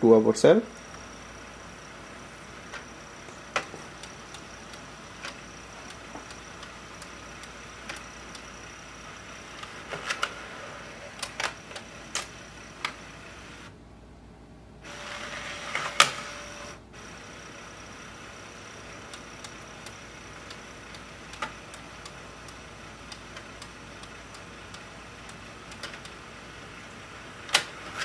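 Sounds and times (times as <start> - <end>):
printer mechanical whir: 0.0 - 13.8, 14.8 - 28.0
low steady mechanical tone: 0.0 - 28.0
printer clicks: 15.7 - 16.5, 19.1 - 26.2, 27.4 - 28.0.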